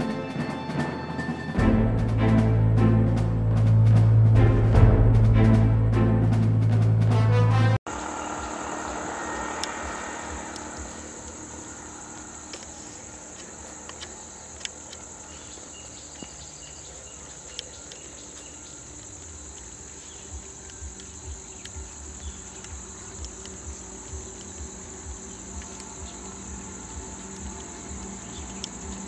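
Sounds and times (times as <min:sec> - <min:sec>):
low pulsing rumble: 0:01.6 - 0:13.3
insect chorus: 0:07.9 - 0:29.0
scattered clicks: 0:17.3 - 0:29.0.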